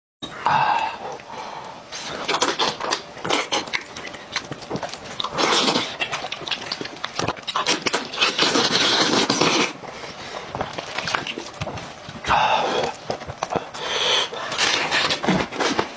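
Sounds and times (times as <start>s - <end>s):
breathing: 0.5s - 1.9s, 13.7s - 14.6s
wet smacking chewing: 1.9s - 15.9s.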